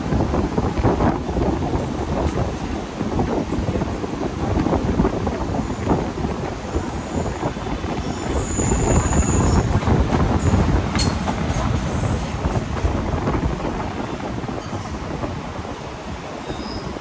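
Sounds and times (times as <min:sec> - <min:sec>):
train wheels rumbling: 0:00.0 - 0:17.0
brief high squeal: 0:16.4 - 0:17.0.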